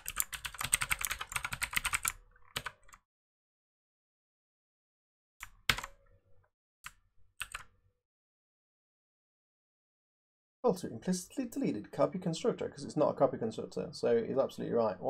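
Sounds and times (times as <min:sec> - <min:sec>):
computer keyboard typing: 0:00.0 - 0:03.0, 0:05.4 - 0:06.0, 0:07.4 - 0:07.7.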